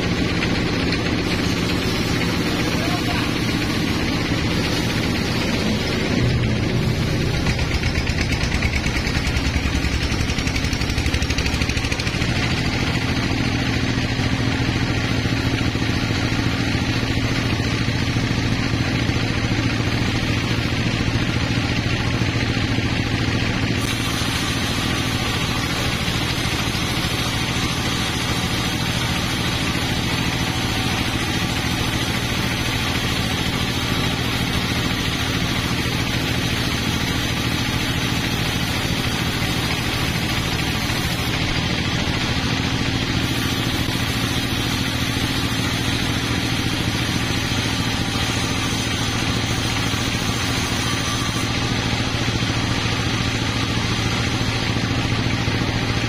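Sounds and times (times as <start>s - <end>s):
motor droning: 0.0s - 13.0s, 23.8s - 42.5s
saw blade spinning: 23.7s - 56.0s.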